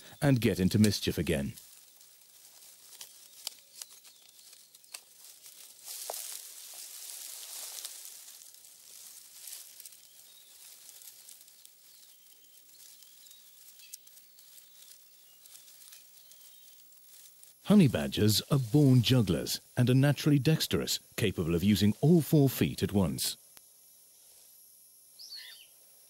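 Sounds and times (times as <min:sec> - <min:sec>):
animal rustling in dry leaves: 0:01.4 - 0:17.6.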